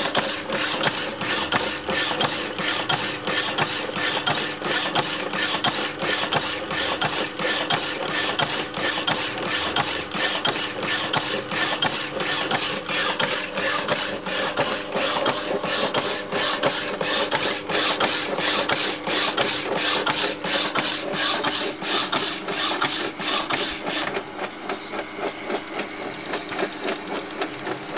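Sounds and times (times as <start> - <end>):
machine drive humming: 0.0 - 27.9.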